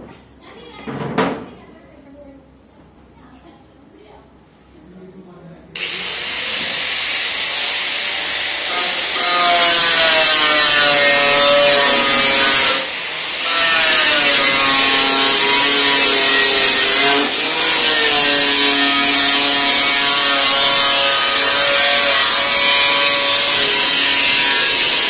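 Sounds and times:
angle grinder grinding metal: 5.8s - 25.0s.

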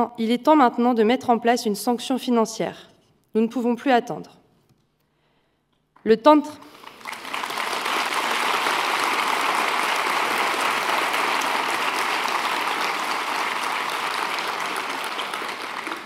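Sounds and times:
audience applauding: 6.7s - 16.0s.

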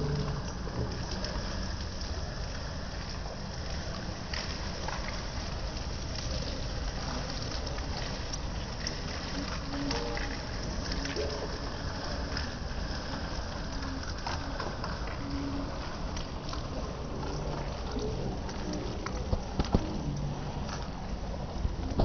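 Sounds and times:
rain on wet concrete: 0.0s - 22.0s
rainwater running: 0.0s - 22.0s.

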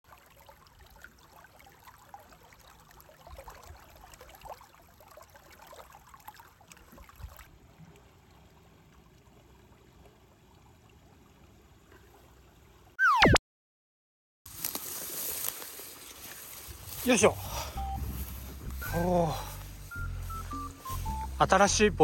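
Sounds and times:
stream water trickling: 0.0s - 13.0s, 14.5s - 21.7s.

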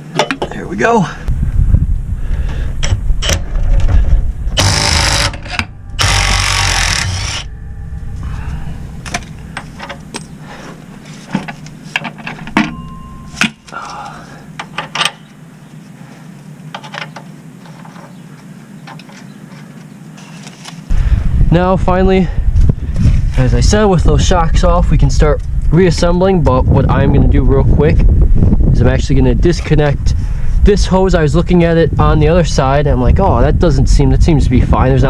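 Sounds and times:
impact wrench bursts: 4.6s - 7.5s
metal clinks and knocks: 8.3s - 13.8s.

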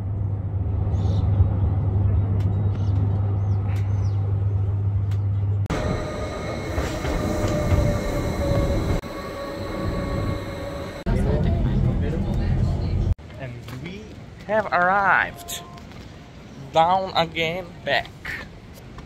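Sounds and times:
train low hum: 0.0s - 13.2s
train rumble: 0.0s - 13.2s
whining motor tone: 5.7s - 11.4s.

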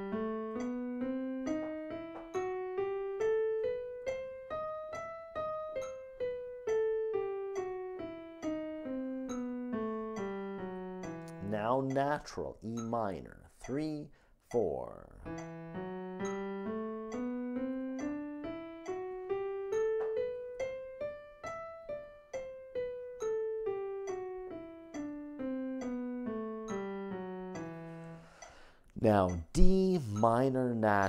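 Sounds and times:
digital piano playing a scale: 0.0s - 31.0s.

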